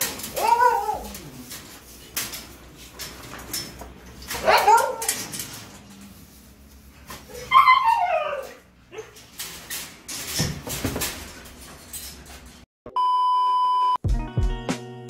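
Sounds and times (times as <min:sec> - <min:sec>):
dog whining: 0:00.0 - 0:01.5, 0:04.4 - 0:05.2, 0:07.2 - 0:09.3
one-note test beep: 0:12.9 - 0:14.0.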